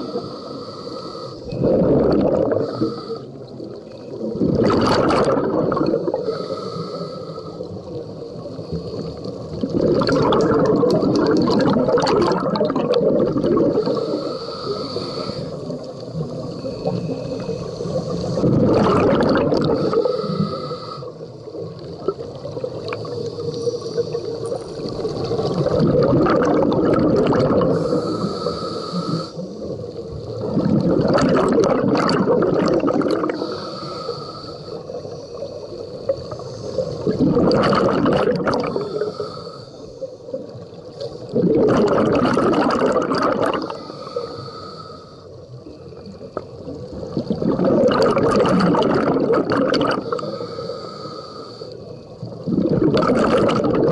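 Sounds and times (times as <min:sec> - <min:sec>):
regulator hissing inhale: 0:00.0 - 0:01.7, 0:02.5 - 0:03.9, 0:05.8 - 0:09.6, 0:13.4 - 0:18.7, 0:19.5 - 0:21.9, 0:22.8 - 0:25.5, 0:27.6 - 0:30.5, 0:33.1 - 0:37.2, 0:38.6 - 0:41.4, 0:43.6 - 0:46.6, 0:49.9 - 0:52.5
gurgling exhaled bubbles: 0:01.4 - 0:06.4, 0:07.6 - 0:33.8, 0:34.8 - 0:39.3, 0:40.3 - 0:44.2, 0:45.4 - 0:50.8, 0:52.1 - 0:53.9.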